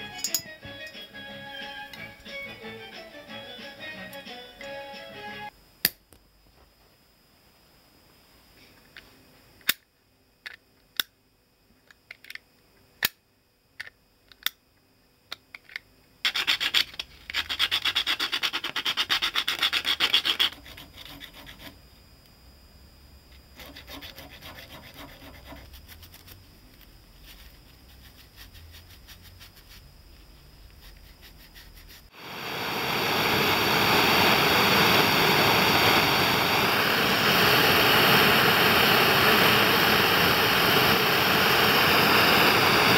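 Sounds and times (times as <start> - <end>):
hand file rasping on steel: 23.6 - 25.7
loud steady rushing noise: 32.2 - 42.9.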